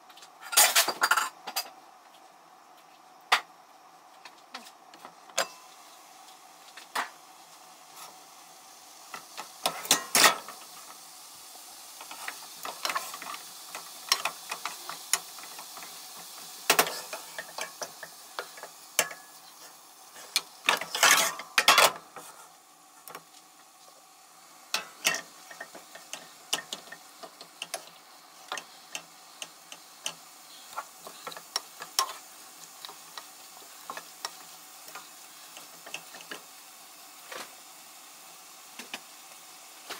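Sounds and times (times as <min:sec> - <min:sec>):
vegetables sizzling in frying pan: 0:00.0 - 0:01.8, 0:02.4 - 0:39.9
cookware clattering: 0:09.6 - 0:10.5, 0:20.7 - 0:22.0, 0:24.8 - 0:27.0.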